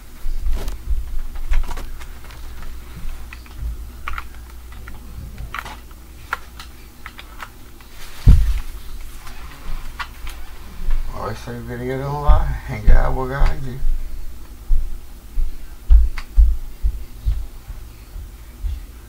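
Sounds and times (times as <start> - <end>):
dull low thumps: 13.8 - 18.8.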